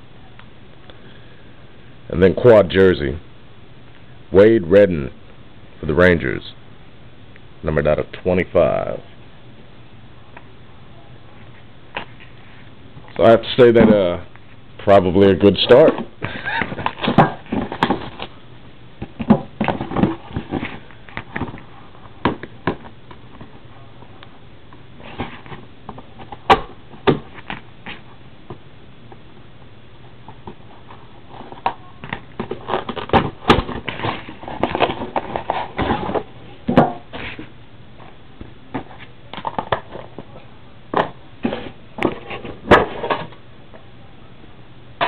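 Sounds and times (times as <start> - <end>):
cardboard box rustling and scraping: 30.5 - 36.3, 41.4 - 43.3.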